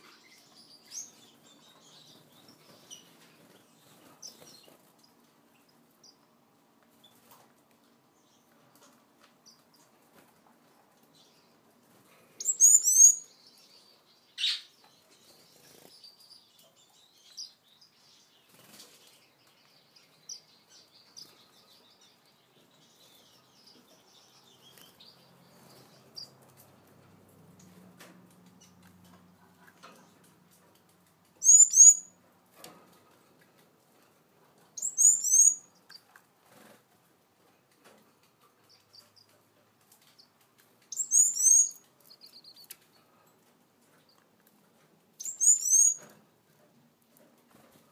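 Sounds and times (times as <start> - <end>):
finches chirping: 12.4 - 18.8, 31.4 - 32.1, 34.8 - 36.0, 40.9 - 42.8, 45.2 - 46.1
soft high peeps: 31.4 - 32.1, 41.0 - 42.7.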